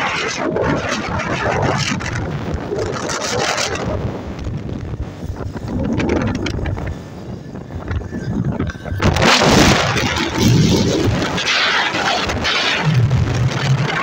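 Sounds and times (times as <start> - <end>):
wind buffeting microphone: 0.0 - 14.0
motorcycle engine rumble: 0.1 - 14.0.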